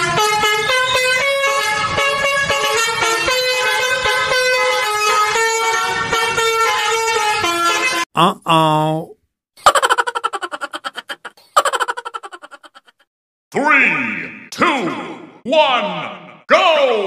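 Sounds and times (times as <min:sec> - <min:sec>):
horn tune: 0:00.0 - 0:08.0.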